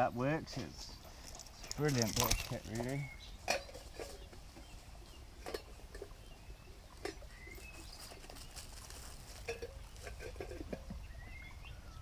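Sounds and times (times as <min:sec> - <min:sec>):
bird chirps: 0:01.6 - 0:05.4, 0:06.2 - 0:08.6, 0:10.9 - 0:12.0.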